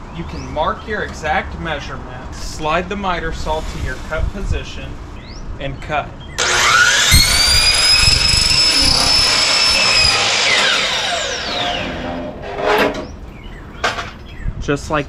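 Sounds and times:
miter saw whining: 0:06.4 - 0:12.8
saw cutting gutter: 0:06.4 - 0:13.0.

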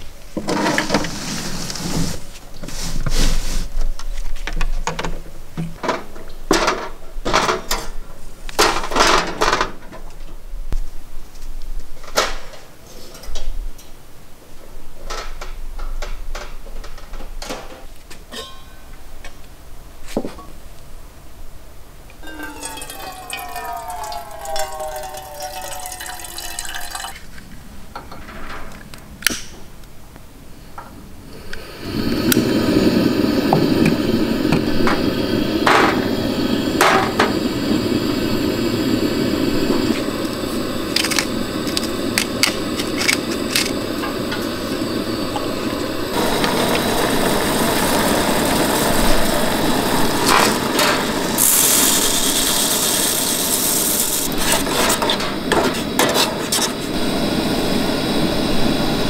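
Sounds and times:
gas burner rushing: 0:00.0 - 0:04.0, 0:22.2 - 0:27.2, 0:31.2 - 0:59.0.

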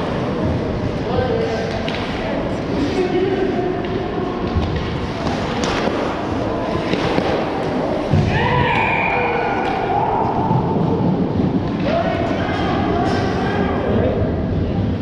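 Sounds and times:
hockey sticks and puck clacking: 0:01.6 - 0:02.2, 0:03.8 - 0:13.4.

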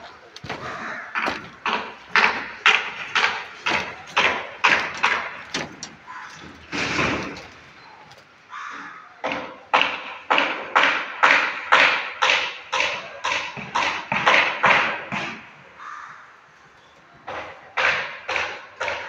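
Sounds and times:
footsteps on steel mesh: 0:00.0 - 0:08.5.

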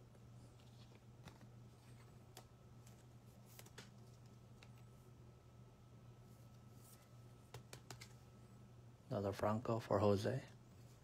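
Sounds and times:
steady low hum: 0:00.0 - 0:11.0
trading cards clicking: 0:07.5 - 0:08.2.

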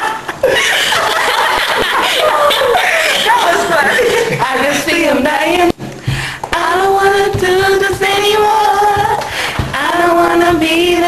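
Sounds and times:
women singing wordless notes: 0:04.4 - 0:11.0.

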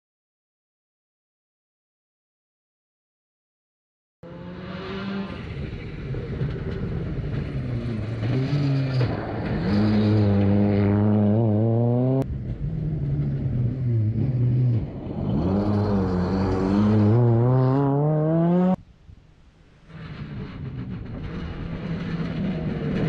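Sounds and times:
rally car engine revving: 0:04.2 - 0:18.8, 0:19.9 - 0:23.0.

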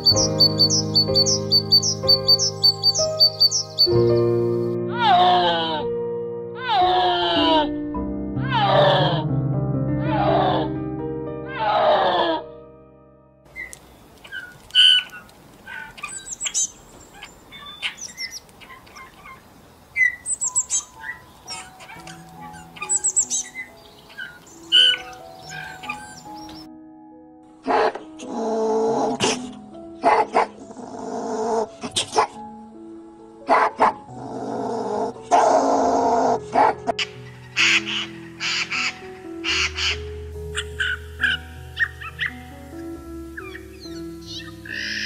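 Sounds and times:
songbirds chirping: 0:00.0 - 0:05.3, 0:13.5 - 0:26.8, 0:27.8 - 0:45.0
high falling bird notes: 0:00.0 - 0:05.4, 0:13.5 - 0:26.7, 0:37.0 - 0:45.0
background music with held notes: 0:00.0 - 0:14.9, 0:20.0 - 0:45.0
animal rasping chattering calls: 0:13.5 - 0:19.4, 0:20.0 - 0:26.7, 0:35.0 - 0:42.4, 0:43.4 - 0:45.0.

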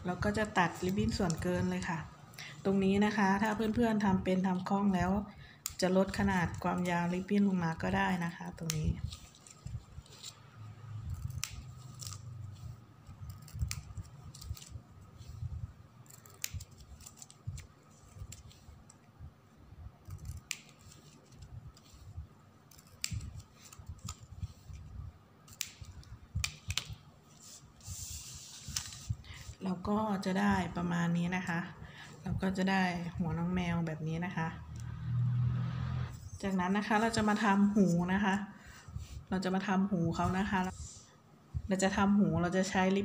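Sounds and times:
scissors snipping: 0:08.5 - 0:09.6, 0:11.0 - 0:12.3, 0:13.1 - 0:14.8, 0:16.0 - 0:19.0, 0:20.0 - 0:21.8, 0:22.7 - 0:24.8, 0:25.5 - 0:27.0
ribbon handling noise: 0:08.5 - 0:19.1, 0:20.1 - 0:29.6.

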